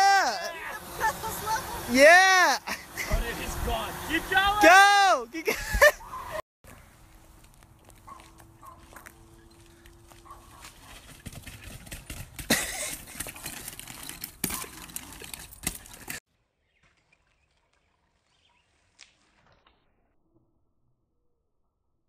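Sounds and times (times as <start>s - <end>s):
small bike rumbling over concrete: 0.0s - 4.7s, 8.0s - 16.2s.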